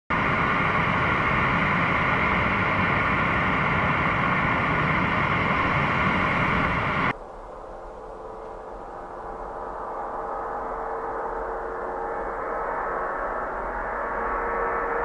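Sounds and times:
jet engines idling: 0.1 - 7.2.

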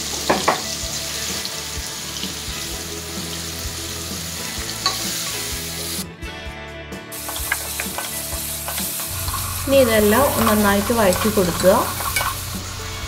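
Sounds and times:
vegetables sizzling in hot oil: 0.0 - 6.0, 7.1 - 13.0
wooden spatula scraping: 8.7 - 13.0.

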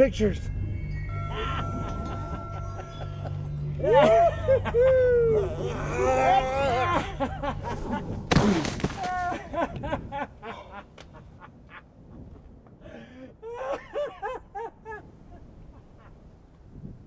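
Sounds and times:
man groaning and crying: 3.8 - 7.6
body thudding on dirt ground: 8.3 - 9.5.

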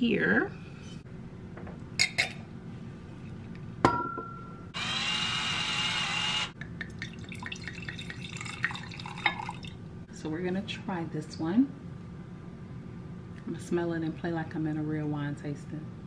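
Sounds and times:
glassy ring from knock: 3.8 - 4.6
wine glass clinking on stone: 3.8 - 4.6
electric wine opener whirring: 4.8 - 6.6
wine pouring into glass: 6.8 - 9.8.

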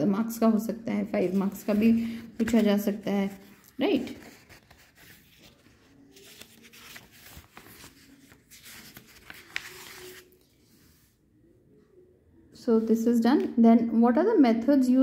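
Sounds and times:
paper pages rustling: 1.1 - 10.8.

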